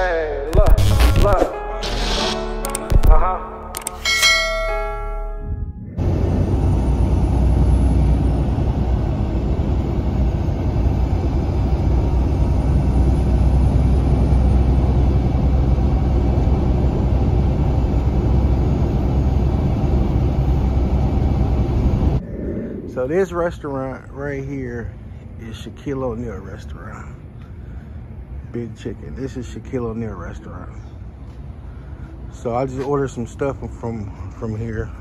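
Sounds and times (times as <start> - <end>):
bell-like chime tones: 3.8 - 5.8
road noise inside vehicle: 6.0 - 22.2.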